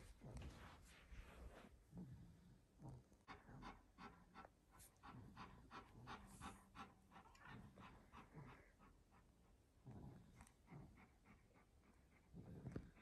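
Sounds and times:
dog panting: 0:03.2 - 0:13.0.

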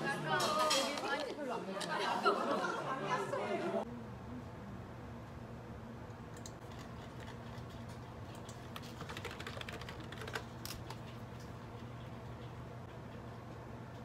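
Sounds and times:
steady low hum: 0:03.7 - 0:14.0
keyboard typing: 0:08.4 - 0:11.1.

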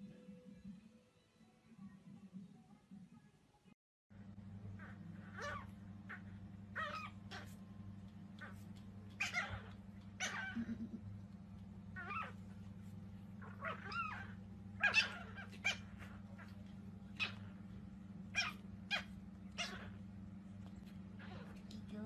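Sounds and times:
steady low hum: 0:04.1 - 0:22.0
puppies yapping and squealing: 0:04.7 - 0:07.6, 0:08.3 - 0:10.8, 0:11.9 - 0:21.6.

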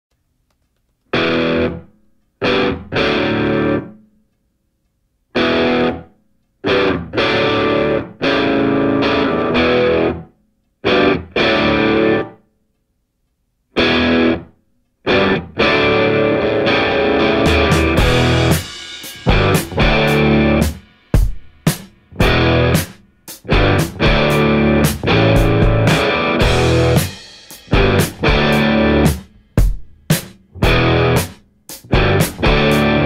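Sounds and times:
distorted electric guitar riff: 0:01.1 - 0:04.0, 0:05.4 - 0:12.4, 0:13.8 - 0:29.8, 0:30.5 - 0:33.0.

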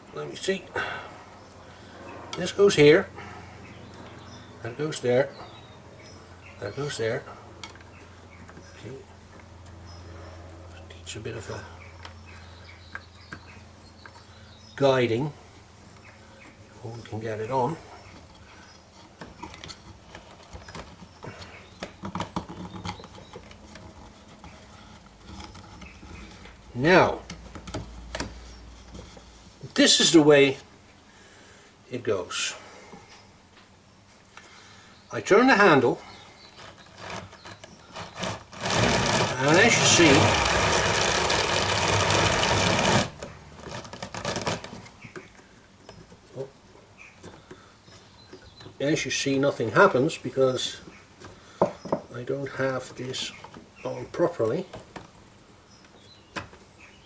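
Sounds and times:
drum carder rubbing whir: 0:36.6 - 0:44.9.

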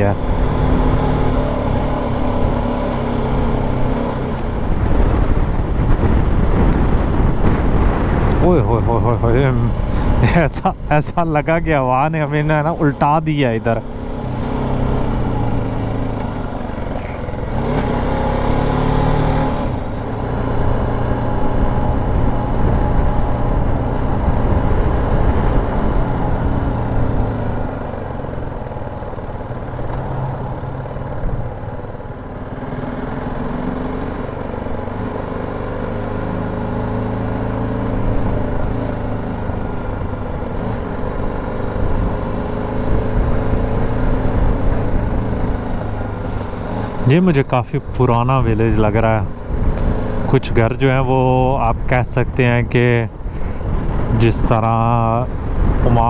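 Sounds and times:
motorcycle engine running: 0:00.0 - 0:18.8, 0:19.8 - 0:56.0
wind on microphone: 0:04.5 - 0:08.4.

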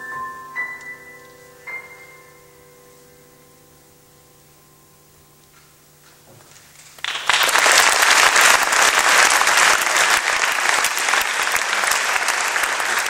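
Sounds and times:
faint electrical hum: 0:00.0 - 0:13.0
audience applause: 0:07.0 - 0:13.0.

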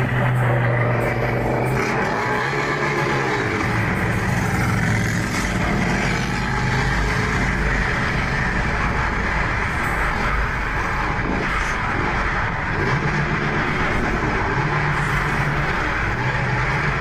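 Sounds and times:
vehicle engines rumbling: 0:00.0 - 0:17.0.

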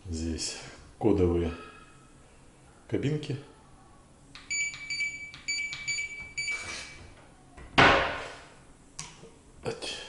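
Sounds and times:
keypad lock beeps: 0:04.4 - 0:06.7.

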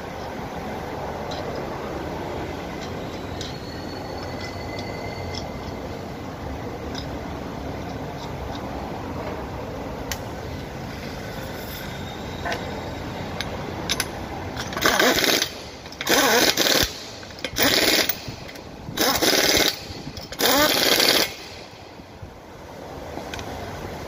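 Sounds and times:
workshop background noise: 0:00.0 - 0:24.0
pneumatic impact wrench bursts: 0:14.6 - 0:21.8.

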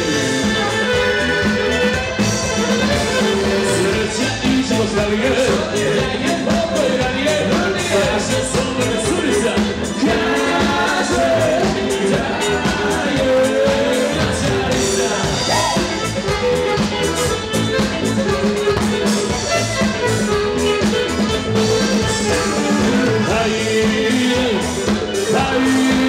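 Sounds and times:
live band playing dance music: 0:00.0 - 0:26.0
person singing: 0:00.0 - 0:26.0.

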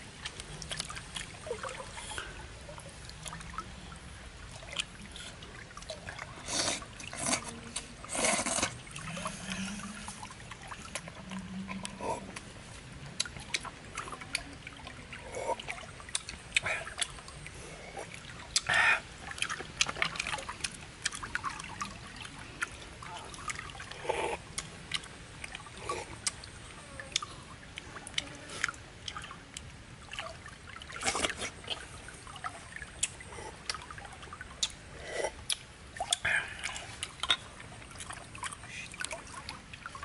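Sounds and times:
wet sucking and slurping: 0:06.3 - 0:12.5, 0:31.0 - 0:31.9
lip smacks: 0:34.6 - 0:37.5.

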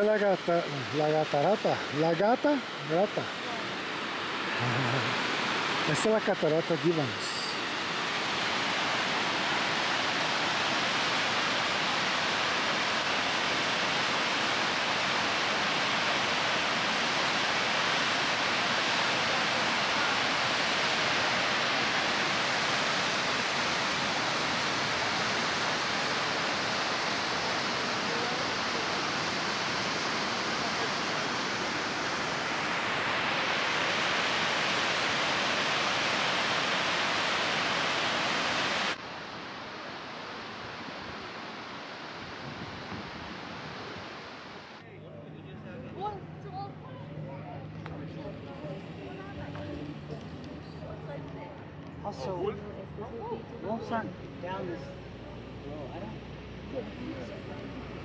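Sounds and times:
waterfall roaring: 0:00.0 - 0:44.8.

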